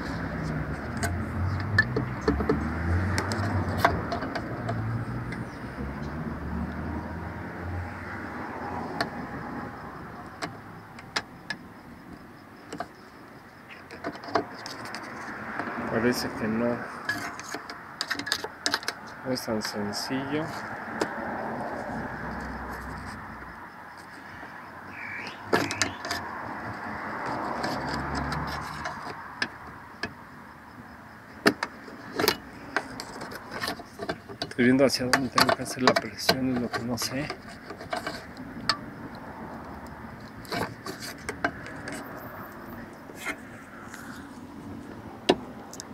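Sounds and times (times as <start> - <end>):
plastic ruler clicking and scraping: 0.1 - 5.5, 13.9 - 15.7, 17.0 - 19.1, 27.1 - 29.6, 31.4 - 38.8, 40.3 - 42.2.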